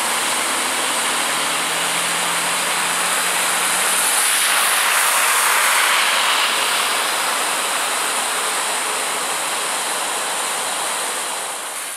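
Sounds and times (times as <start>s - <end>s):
car tyres hissing on wet road: 0.0s - 11.9s
floodwater gushing from a pipe: 0.0s - 11.9s.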